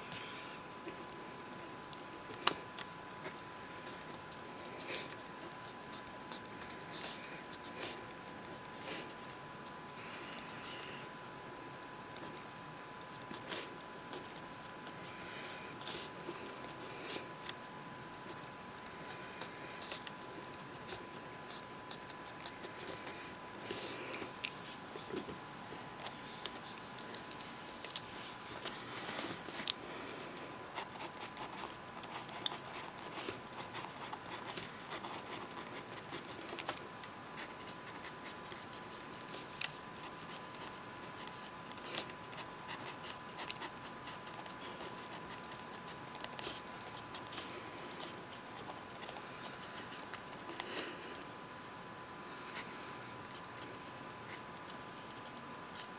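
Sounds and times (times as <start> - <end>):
pen scratching on paper: 37.4 - 47.5.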